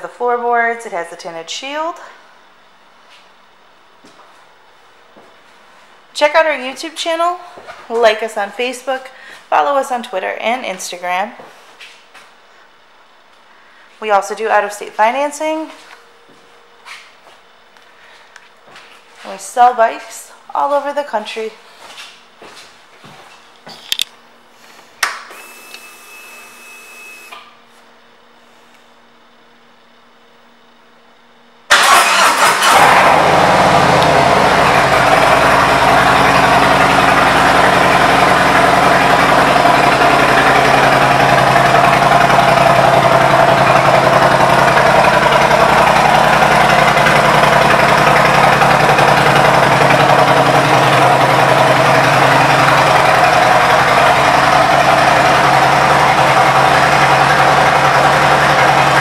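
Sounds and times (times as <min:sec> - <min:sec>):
motorcycle engine idling loudly: 0:31.8 - 0:59.0.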